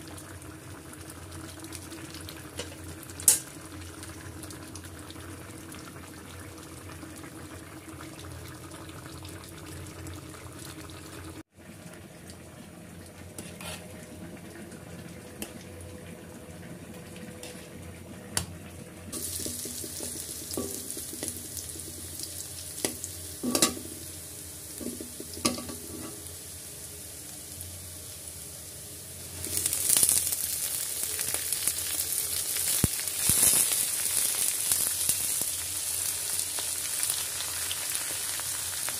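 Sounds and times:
stir-frying sizzle in a wok: 0.0 - 11.5, 17.3 - 38.9
spatula knocking on pan: 19.4 - 22.0.

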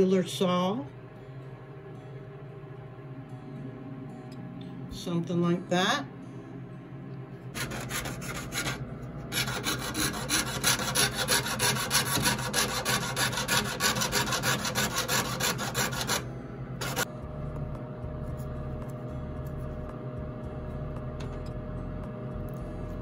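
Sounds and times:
saw rasping through metal sheet: 7.6 - 16.2, 16.8 - 17.1.

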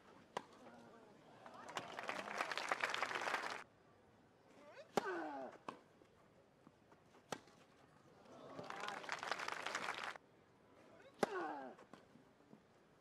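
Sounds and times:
crowd applause: 1.5 - 3.6, 8.5 - 10.2.

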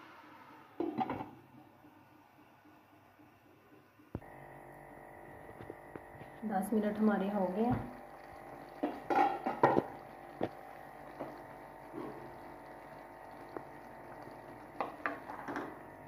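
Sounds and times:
curry simmering and bubbling: 3.6 - 16.0.

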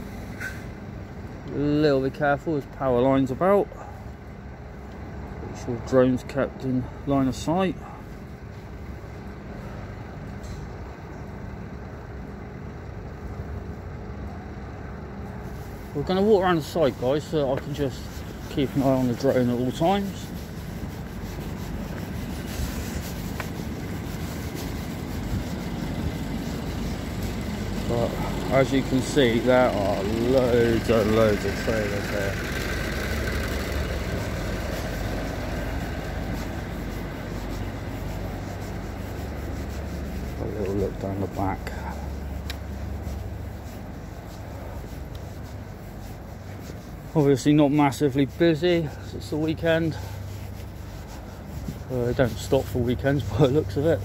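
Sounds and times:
lorry engines and traffic rumble: 0.0 - 54.0.

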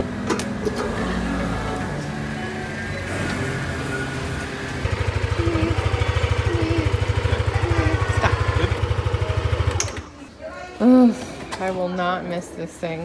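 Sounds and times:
music: 0.0 - 4.8
scooter engine idling: 3.0 - 10.1.

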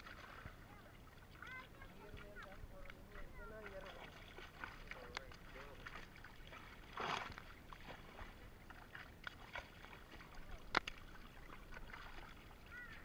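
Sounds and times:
fish thrashing and splashing: 0.0 - 13.0
sharp slaps on water: 9.2 - 9.8, 10.6 - 11.1.

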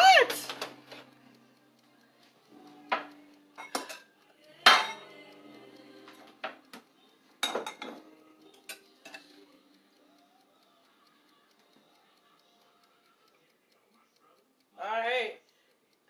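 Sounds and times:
cutlery and dishes clinking: 2.9 - 5.1, 7.4 - 9.4.

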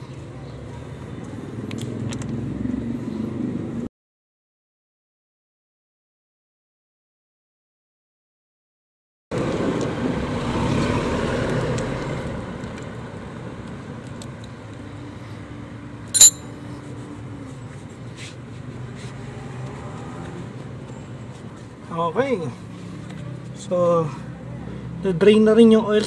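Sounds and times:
traffic hum: 0.0 - 3.9
metallic clink: 16.2 - 16.4.

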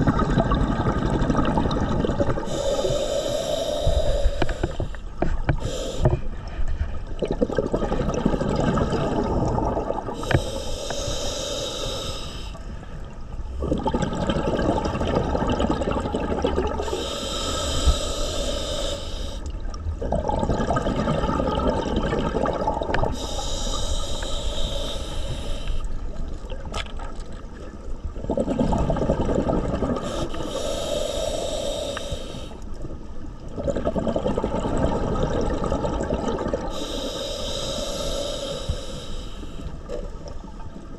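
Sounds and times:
exhaled bubbles rushing: 0.0 - 2.5, 7.0 - 10.2, 13.5 - 17.0, 19.6 - 23.2, 26.3 - 30.4, 33.4 - 36.8
regulator hissing inhale: 2.4 - 6.9, 10.2 - 12.9, 16.8 - 19.5, 23.1 - 26.0, 30.0 - 32.8, 36.6 - 39.9.

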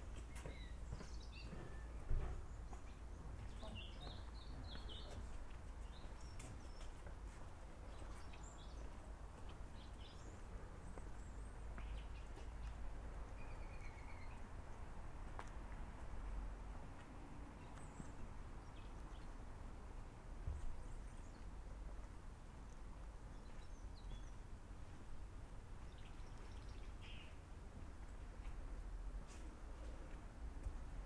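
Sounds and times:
footsteps on stone: 0.0 - 13.3, 15.2 - 17.9, 27.7 - 31.0
bird chirps: 13.4 - 14.5.

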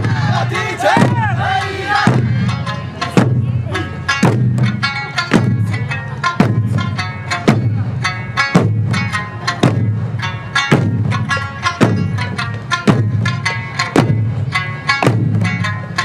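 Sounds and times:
group shouts: 0.0 - 2.2
taiko drums struck: 0.0 - 16.0.

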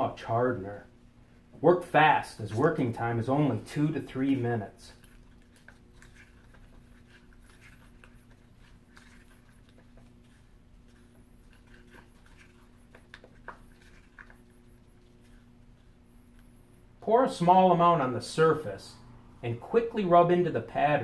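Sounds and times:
faint steady hum: 0.0 - 21.0
stick scraping in paper cup: 4.3 - 16.4.

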